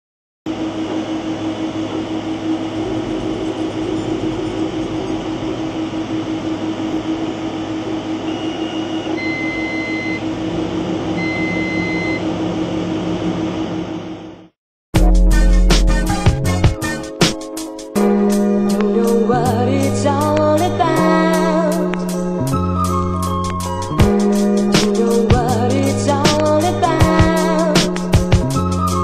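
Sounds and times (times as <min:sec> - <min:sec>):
engraving machine humming: 0:00.5 - 0:14.5
short high beeps: 0:08.3 - 0:10.2.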